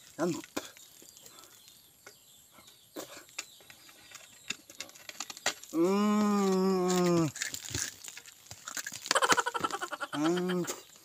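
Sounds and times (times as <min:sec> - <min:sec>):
faint clicks and scrapes: 0:00.4 - 0:05.7, 0:06.4 - 0:09.8
man straining groan: 0:05.8 - 0:07.3.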